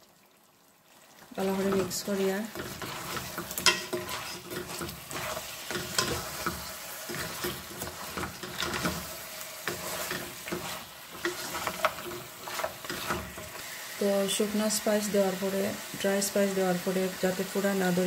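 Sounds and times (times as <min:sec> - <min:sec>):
meat sizzling in oil: 0:00.0 - 0:18.0
wooden spatula scraping a pot: 0:01.4 - 0:13.8.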